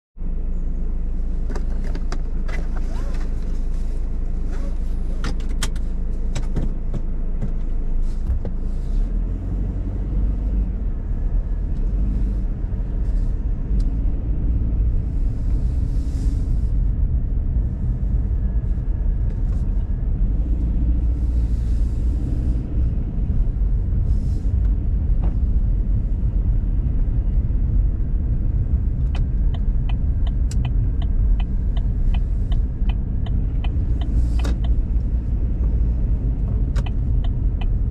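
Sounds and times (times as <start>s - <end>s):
engine and road rumble: 0.0s - 37.9s
turn signal ticking: 22.1s - 37.9s.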